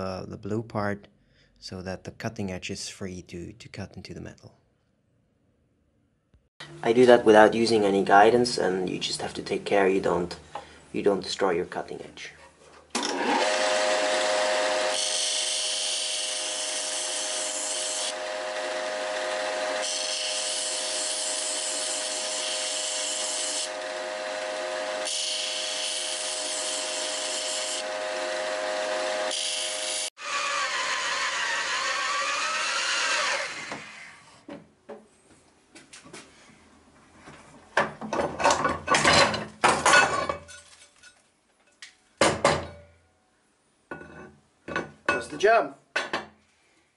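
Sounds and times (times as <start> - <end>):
drill bit grinding on sander: 13.1 - 34.2.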